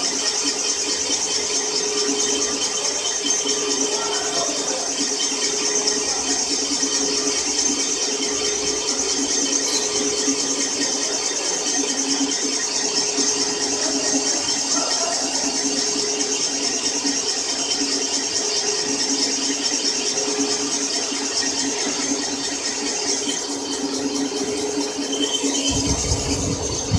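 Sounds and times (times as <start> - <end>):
boring machine drone: 0.0 - 26.9.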